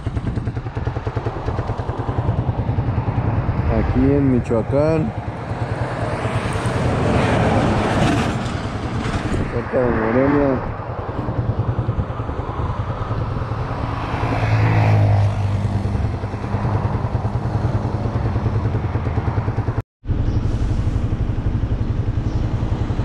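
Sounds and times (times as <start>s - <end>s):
motorcycle engine pulsing: 0.0s - 4.4s
road noise: 0.0s - 23.0s
vehicle passing: 2.2s - 23.0s.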